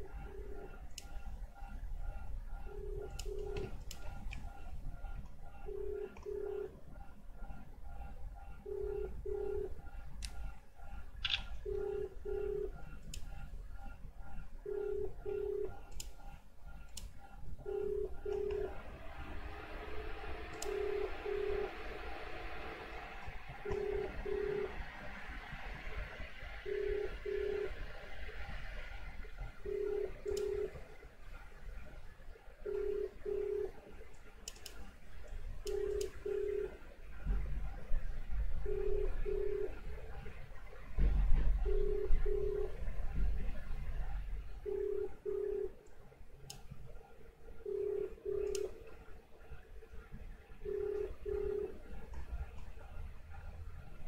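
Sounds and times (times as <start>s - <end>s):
telephone ringback tone: 2.7s - 3.8s, 5.6s - 6.8s, 8.6s - 9.8s, 11.2s - 12.9s, 14.6s - 15.8s, 17.6s - 18.9s, 20.6s - 22.0s, 23.6s - 24.9s, 26.6s - 27.8s, 29.6s - 30.8s, 32.6s - 33.9s, 35.7s - 36.8s, 38.6s - 39.9s, 41.6s - 42.8s, 44.6s - 45.8s, 47.6s - 48.6s, 50.6s - 51.9s
faint clicks: 15.8s - 16.2s, 16.8s - 17.2s, 20.5s - 20.8s, 30.2s - 30.6s, 34.1s - 36.2s, 48.4s - 49.0s.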